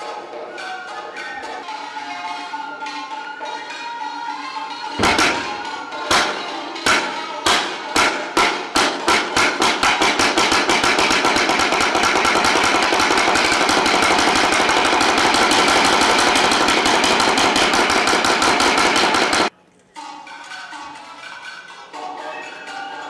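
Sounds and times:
wooden clappers clacking: 5.0 - 19.5.

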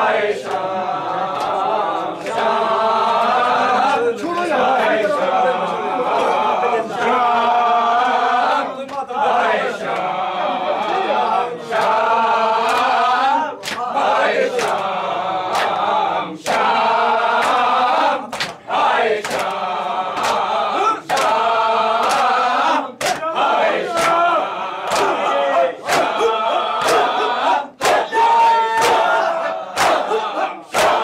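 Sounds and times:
men chanting in chorus: 0.0 - 31.0
hands slapping chests: 13.6 - 13.9, 15.5 - 15.8, 18.3 - 18.6, 19.2 - 19.6, 20.2 - 20.5, 21.1 - 21.4, 22.0 - 22.4, 23.0 - 23.3, 23.9 - 24.2, 24.9 - 25.2, 25.8 - 27.2, 27.8 - 28.2, 28.8 - 31.0.

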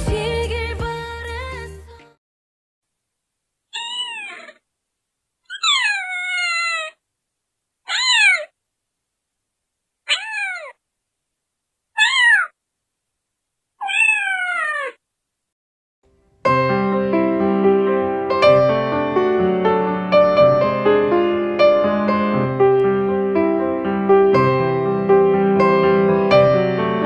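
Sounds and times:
cat meowing: 3.7 - 4.6, 5.5 - 7.0, 7.9 - 8.6, 10.1 - 10.8, 12.0 - 12.6, 13.8 - 15.0.

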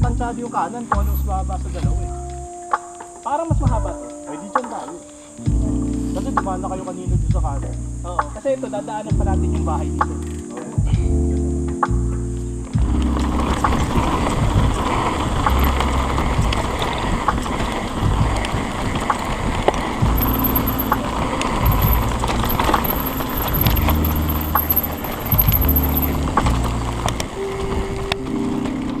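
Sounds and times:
tyre and wind noise: 12.6 - 29.0
bike clicks and rattles: 13.0 - 27.4.

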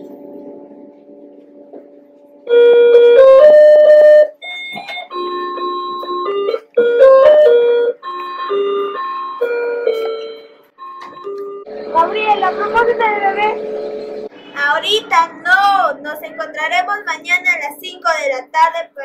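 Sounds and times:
simple electronic melody: 0.0 - 14.5.

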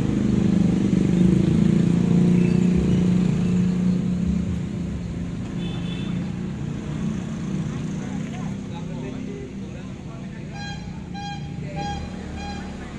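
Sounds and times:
loud bass-heavy sound from speakers: 10.4 - 12.9.

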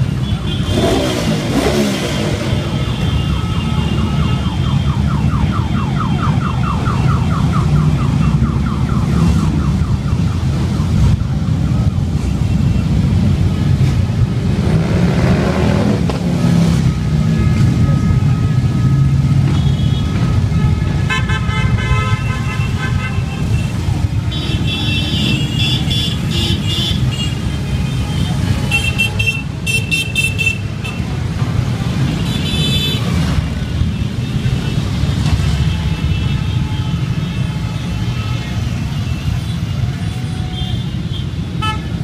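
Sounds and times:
horns tooting: 0.0 - 5.1, 14.5 - 42.0
motorcycle engines droning: 0.0 - 21.1, 22.1 - 42.0.

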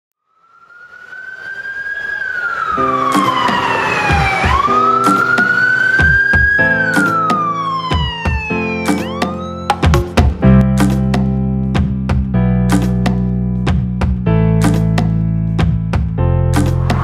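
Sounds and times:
emergency siren wailing: 0.2 - 10.0
music with drum beat: 4.1 - 11.2, 11.8 - 13.1.

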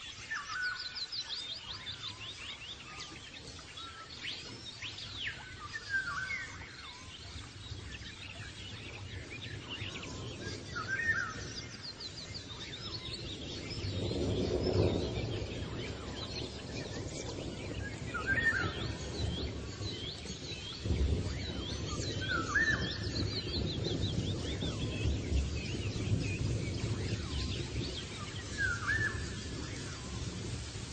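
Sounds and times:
birds chirping and singing: 0.0 - 30.9.

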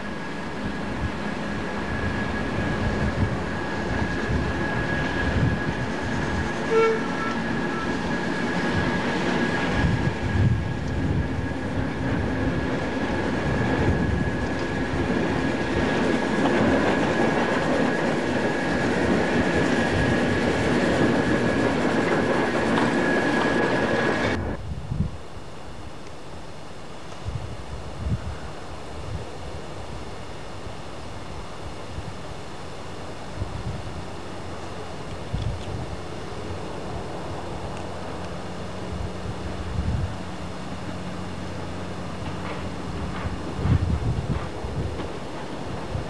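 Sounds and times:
diesel locomotive engine passing: 0.0 - 24.6, 33.3 - 46.0
locomotive horn toot: 6.6 - 8.1.

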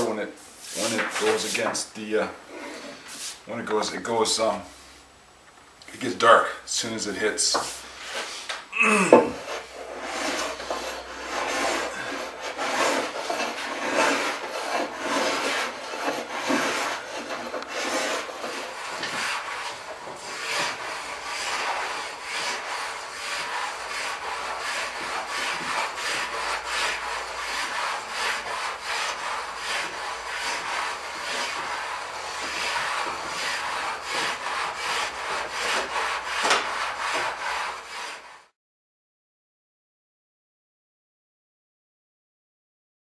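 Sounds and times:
hand plane shaving wood: 9.1 - 38.5.

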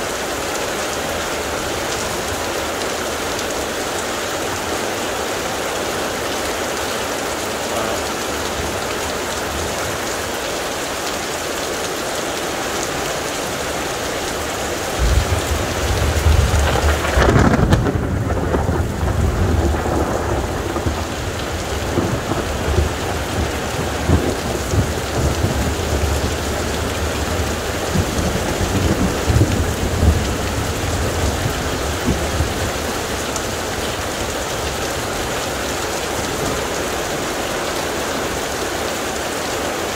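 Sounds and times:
heavy rain falling: 0.0 - 39.9
thunder rumbling and cracking: 14.8 - 35.6.

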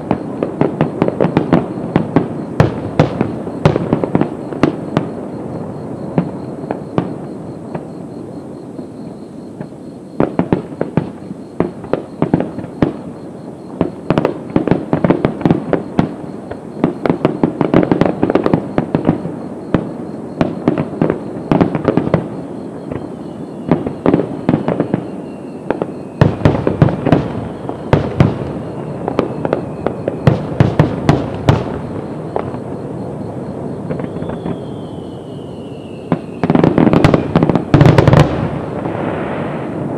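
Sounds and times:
fireworks bangs and crackling: 0.0 - 39.9
faint falling whistle: 22.6 - 26.5, 33.8 - 37.4.

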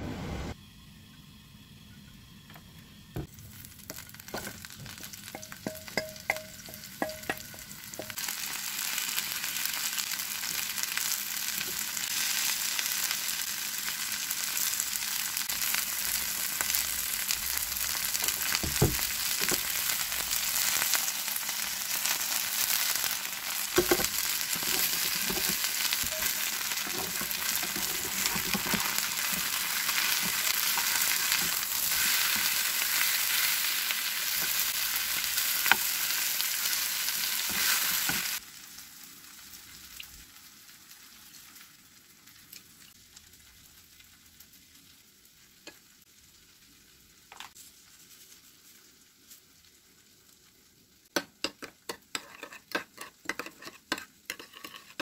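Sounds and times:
batter sizzling in hot oil: 2.8 - 55.0.

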